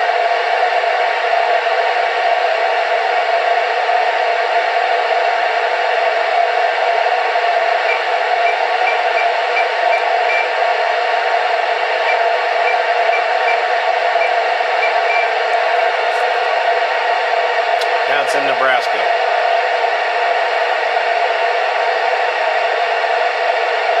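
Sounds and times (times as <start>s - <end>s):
radio static hiss: 7.6s - 17.2s, 17.8s - 19.3s.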